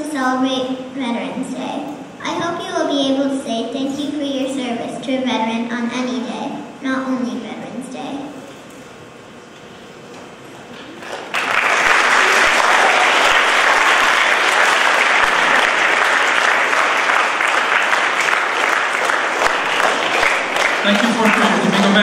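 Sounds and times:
audience applauding: 10.9 - 22.0.

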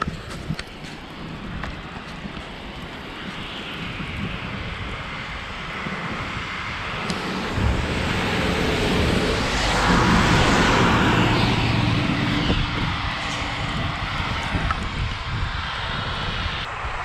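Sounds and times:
bus engine drone: 0.0 - 17.0
wind rush from cycling: 0.0 - 17.0.

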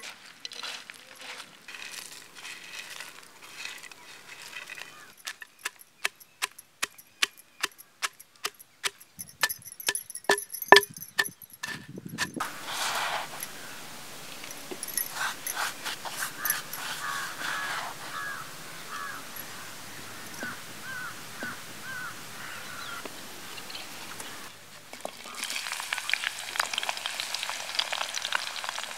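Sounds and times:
spices rustling into mortar: 0.0 - 19.6
scraping spice by hand: 1.2 - 19.6
pestle pounding in mortar: 5.3 - 12.4.

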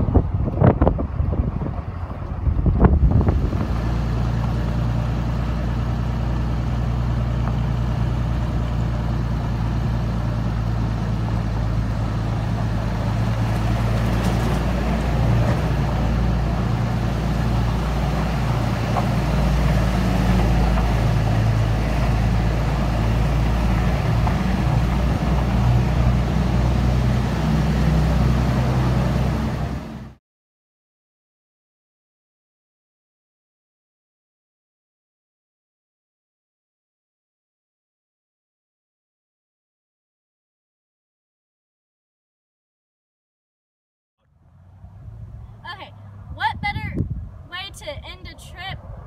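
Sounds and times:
truck engine hum: 0.0 - 30.2, 44.3 - 49.0
tyre and road noise: 0.0 - 30.2, 44.2 - 49.0.

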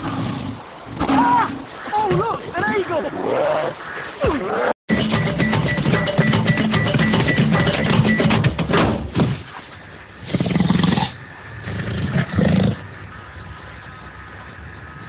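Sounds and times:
drum music: 4.9 - 9.2.

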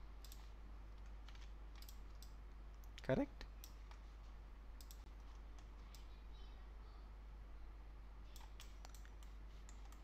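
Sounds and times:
computer mouse clicking: 0.2 - 3.0, 4.8 - 6.1, 8.3 - 10.0.

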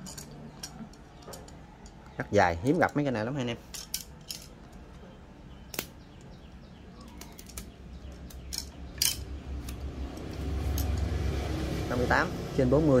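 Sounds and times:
screwdrivers clicking and clinking: 0.0 - 2.2, 2.8 - 5.1, 7.0 - 11.1.

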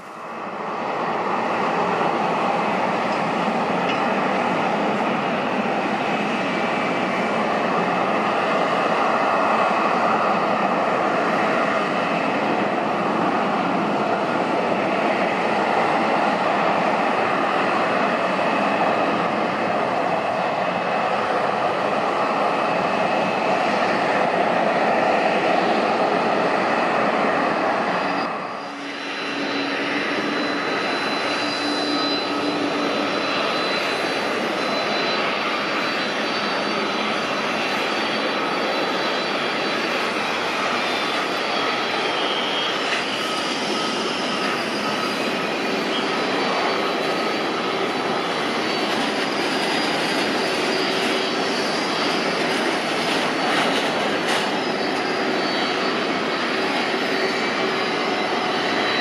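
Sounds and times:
jet engines whining: 0.0 - 59.0
thin high whistle: 27.7 - 59.0.

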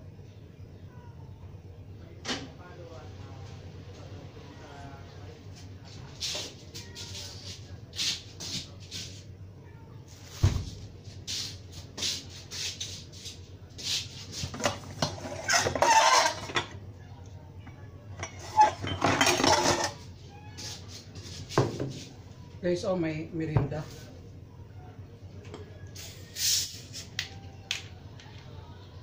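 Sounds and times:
plastic bags and dishes rustling: 14.4 - 16.8, 18.2 - 20.1.

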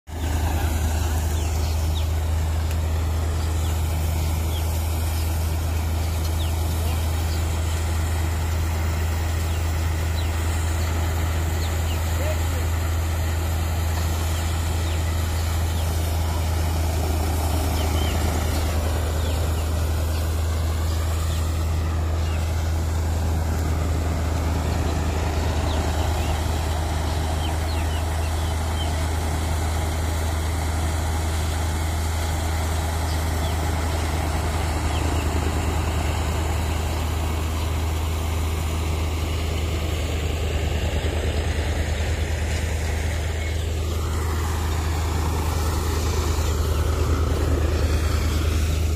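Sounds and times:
thresher and tractor drone: 0.1 - 48.9.

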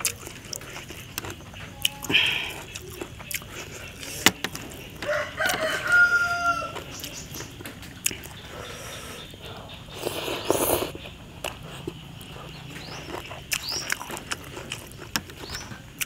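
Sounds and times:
rooster crowing: 5.0 - 6.9.

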